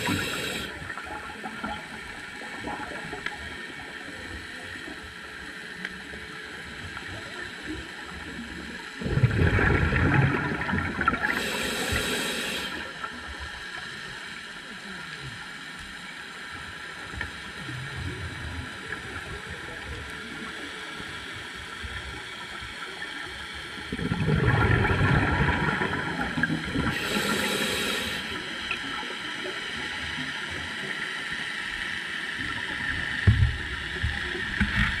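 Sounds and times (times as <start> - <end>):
steady underwater hiss: 0.0 - 35.0
rush of exhaled bubbles: 9.0 - 12.2, 23.9 - 28.2.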